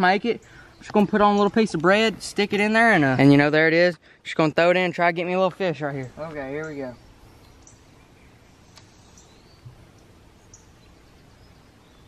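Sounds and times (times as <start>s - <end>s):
faint outdoor hiss: 0.0s - 12.0s
small bird chirps: 6.0s - 12.0s.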